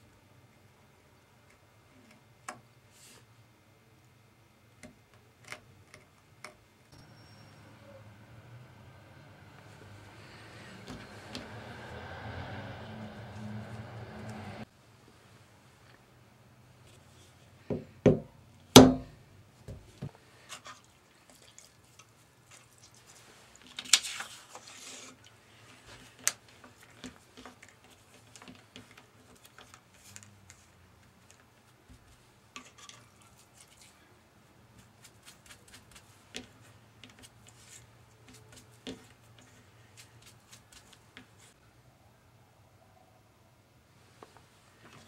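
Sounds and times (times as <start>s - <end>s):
mallet knocking metal punch: 18.8s - 19.1s.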